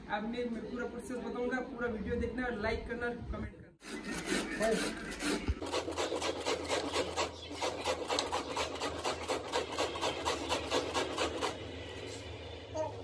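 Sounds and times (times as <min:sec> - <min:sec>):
cabbage rasping on a metal grater: 0:03.8 - 0:11.6.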